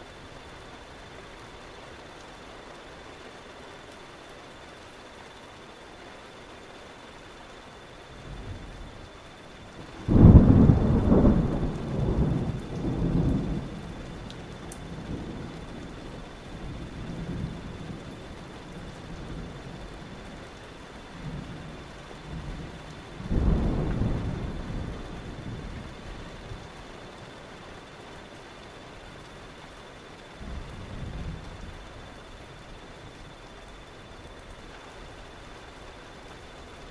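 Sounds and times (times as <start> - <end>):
steady rain: 0.0 - 36.9
thunder rumbling: 8.2 - 20.4, 21.2 - 27.0, 30.3 - 33.4.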